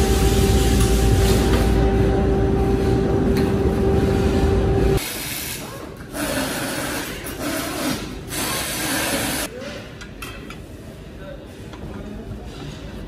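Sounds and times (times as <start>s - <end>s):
electric pallet stacker whine: 0.0s - 5.0s.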